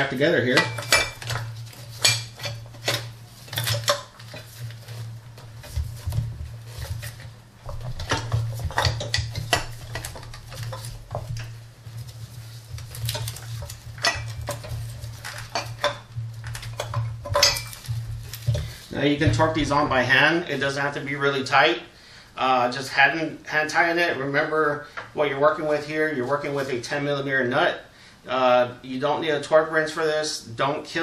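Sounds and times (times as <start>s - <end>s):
steady low hum: 0.0s - 29.4s
metal tools clinking: 0.5s - 5.0s, 12.9s - 18.8s.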